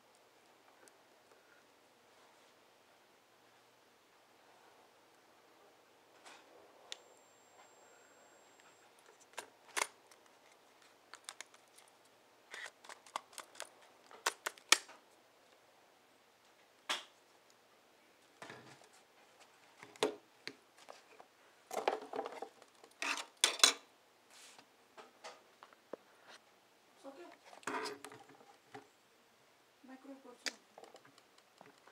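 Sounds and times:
faint high whine: 2.8 - 9.4.

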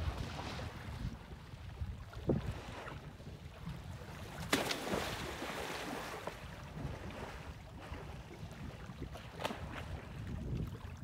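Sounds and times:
wind rumble on microphone: 0.0 - 11.0
water splashing: 4.2 - 8.0.

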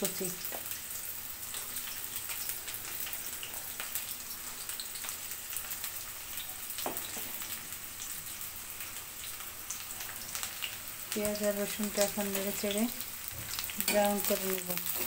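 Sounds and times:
onion and garlic sizzling in oil: 0.0 - 15.0.

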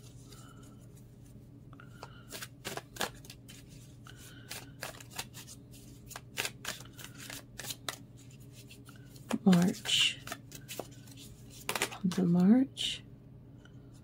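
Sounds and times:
cards being shuffled: 2.0 - 12.6.

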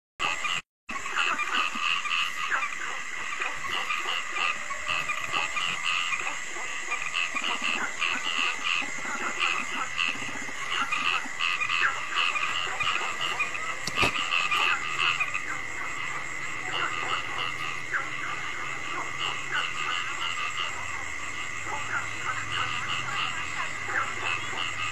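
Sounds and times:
frogs calling: 0.2 - 24.9
sharp click: 13.8 - 14.2.

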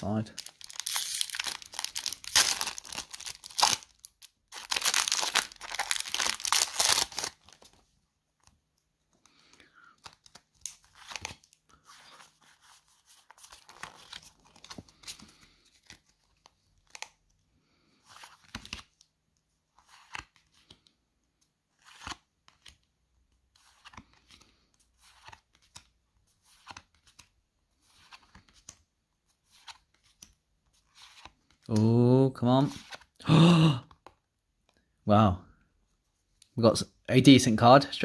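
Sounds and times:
cards rustling and clicking: 0.3 - 7.8, 8.4 - 17.3, 17.9 - 19.1, 19.7 - 31.8.

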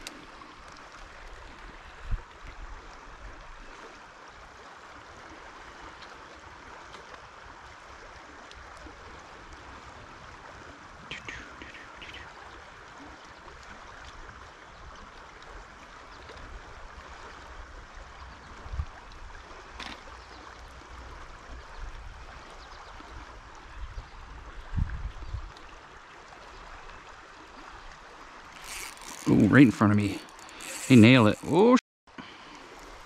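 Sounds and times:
river water rushing: 25.7 - 33.0.

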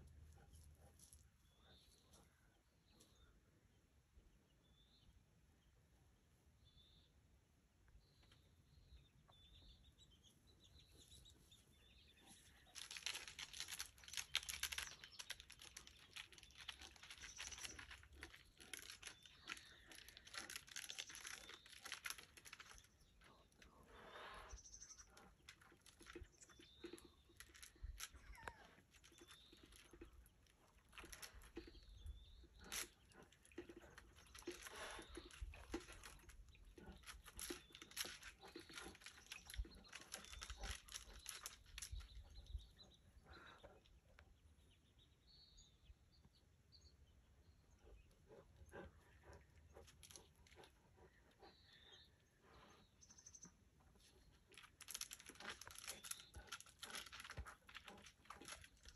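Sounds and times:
faint bird chirps: 7.9 - 58.9
claws scratching tree bark: 12.5 - 23.2, 32.5 - 42.3, 54.6 - 58.9.

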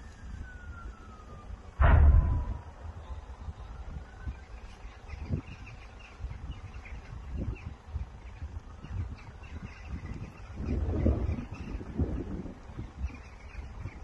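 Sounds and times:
wind buffeting microphone: 0.0 - 14.0
small birds chirping: 2.9 - 14.0.

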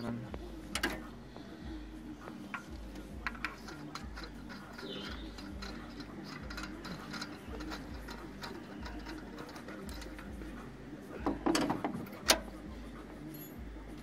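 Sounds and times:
hand tools clicking on metal: 2.5 - 10.4
metallic clatter: 2.5 - 10.6.

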